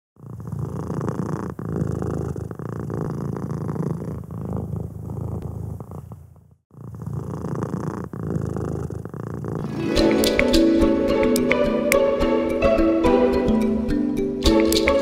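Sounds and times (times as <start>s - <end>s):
cat purring: 0.2s - 10.5s.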